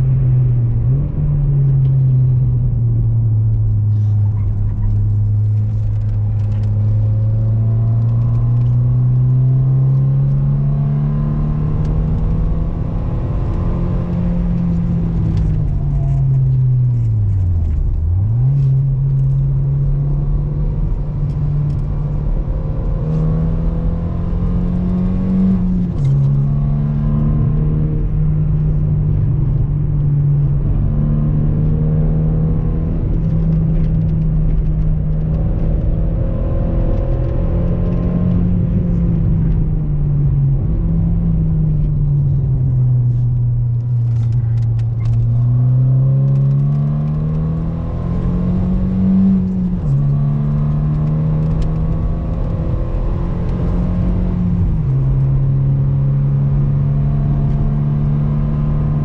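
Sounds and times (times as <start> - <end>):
car engine revving: 0.0 - 59.0
road rumble: 0.0 - 59.0.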